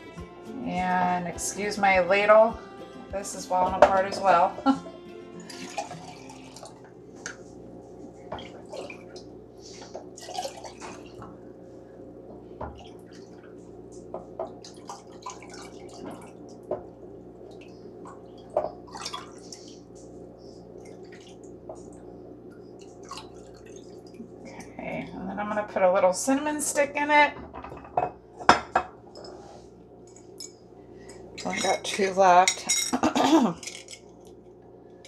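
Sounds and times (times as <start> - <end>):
faint steady hum: 0.0 - 35.0
liquid pouring and dripping: 10.2 - 11.4, 12.7 - 20.1, 20.8 - 24.6.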